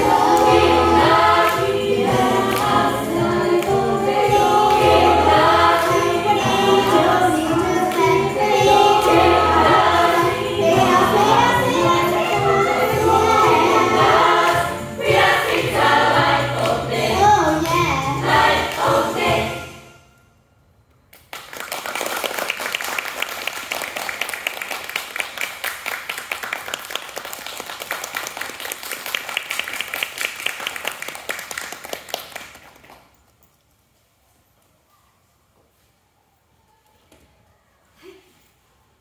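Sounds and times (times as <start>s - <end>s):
choir singing: 0.0s - 20.0s
audience applauding: 21.3s - 33.1s.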